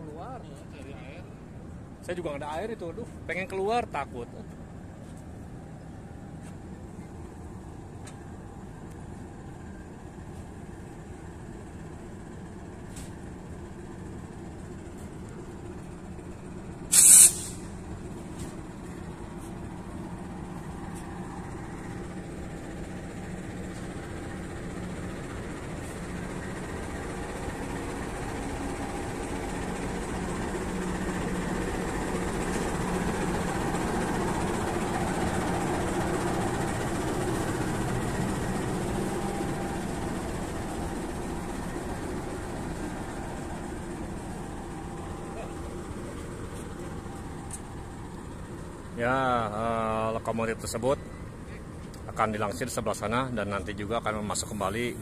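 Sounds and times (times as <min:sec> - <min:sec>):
locomotive engine running: 0:00.0 - 0:55.0
loud hiss of air: 0:16.8 - 0:17.9.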